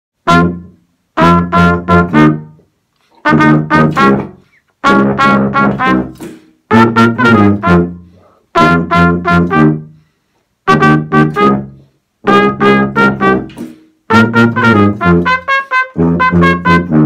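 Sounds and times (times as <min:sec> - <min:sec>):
trumpet playing: 0:00.2 - 0:17.0
tuba playing low notes: 0:00.2 - 0:17.0.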